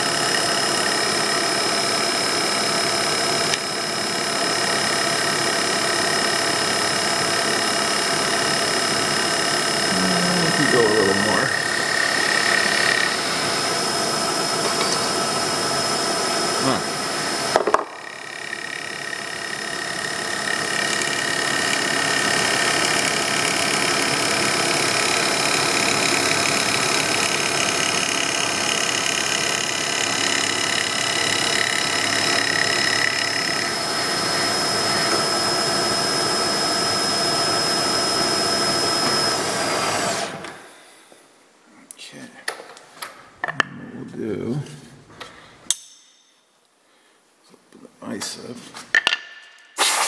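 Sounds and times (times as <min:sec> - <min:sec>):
milling spindle whine: 0:00.0 - 0:40.5.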